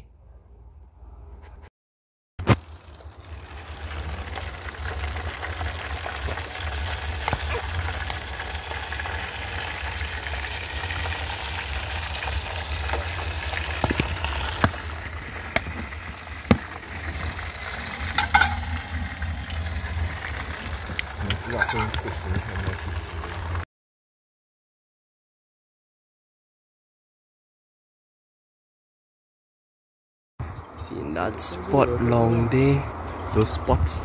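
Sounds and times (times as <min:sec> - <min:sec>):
food sizzling in metal tray: 0:02.5 - 0:23.6
steady low rumble: 0:02.8 - 0:23.6
utensil stirring: 0:12.3 - 0:22.5.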